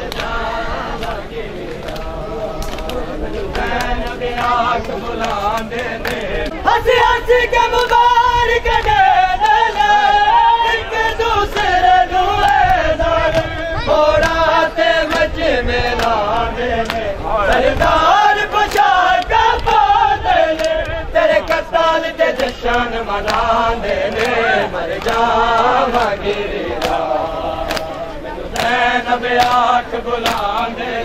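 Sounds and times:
men chanting: 0.0 - 31.0
chest-beating slaps: 29.4 - 30.7.

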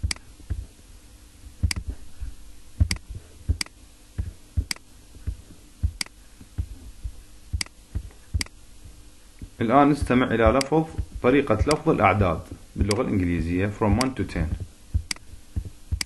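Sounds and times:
faint steady hum: 0.0 - 16.0
computer mouse clicking: 8.4 - 8.6, 11.6 - 11.9.

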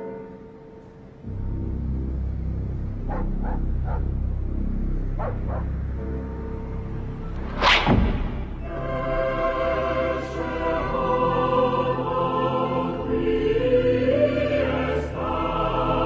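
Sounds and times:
eerie musical drone: 0.0 - 16.0
dog barking: 3.1 - 4.2, 5.2 - 5.8
low thud: 7.7 - 8.6.

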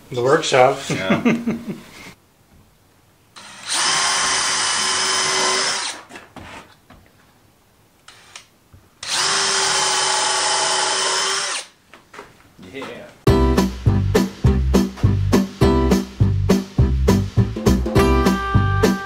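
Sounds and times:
power drill running: 3.4 - 6.0, 9.0 - 11.7.

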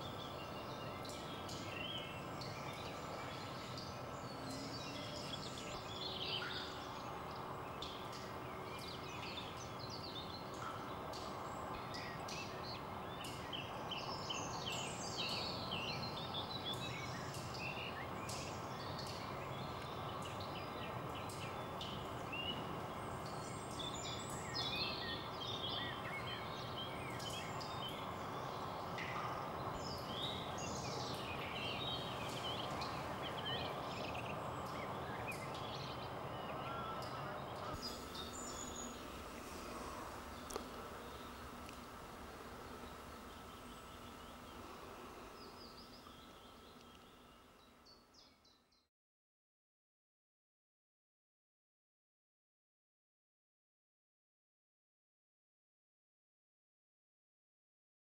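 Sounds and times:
steady background hiss: 0.0 - 48.6
small birds chirping: 0.0 - 48.9.

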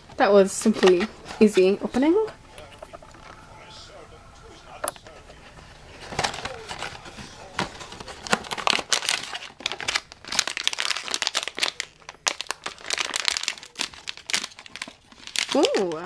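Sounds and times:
foil pouch crinkling: 5.0 - 16.0.

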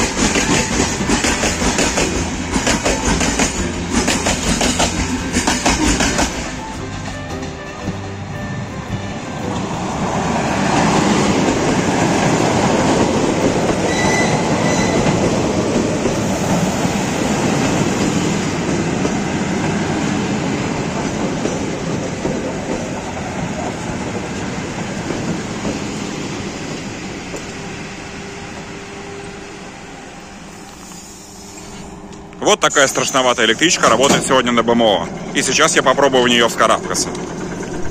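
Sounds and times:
train wheels rumbling on rails: 0.0 - 37.9.

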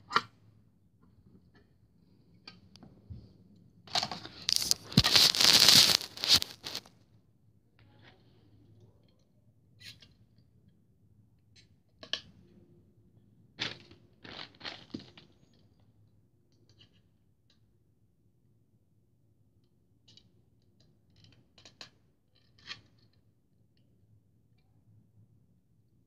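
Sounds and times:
camera handling rustling and scraping: 4.0 - 6.8
short rustles and crinkles: 4.0 - 6.9.

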